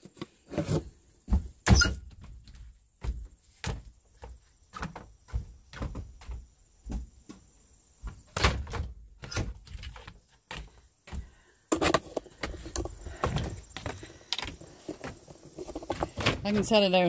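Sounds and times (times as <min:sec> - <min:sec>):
door opening and shutting: 0:01.6 - 0:02.2, 0:08.3 - 0:10.0
knocks and bumps: 0:08.0 - 0:17.0.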